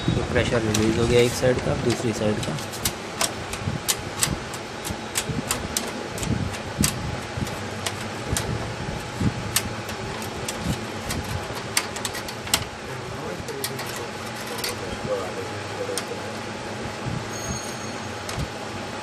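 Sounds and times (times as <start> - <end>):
steady background noise: 0.0 - 19.0
screwdriver clicking mechanism: 1.9 - 8.5, 9.5 - 12.7.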